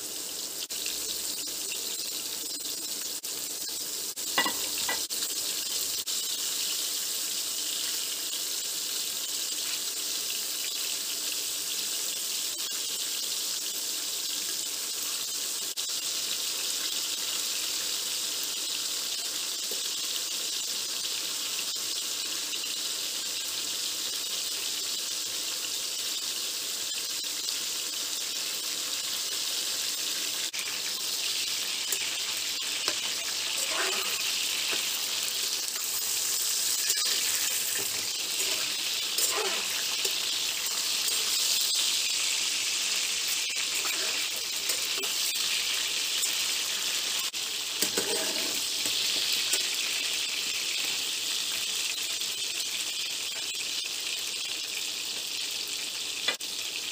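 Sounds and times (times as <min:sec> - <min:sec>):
liver sizzling in a frying pan: 0:00.0 - 0:56.9
metal spatula scraping: 0:32.8 - 0:41.6, 0:43.6 - 0:45.2, 0:47.8 - 0:49.0.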